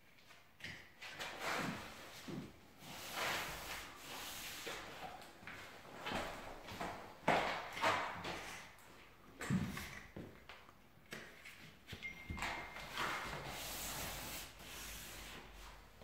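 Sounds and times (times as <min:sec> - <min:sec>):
hands rubbing tape on drywall: 0:00.6 - 0:05.3, 0:12.9 - 0:15.8.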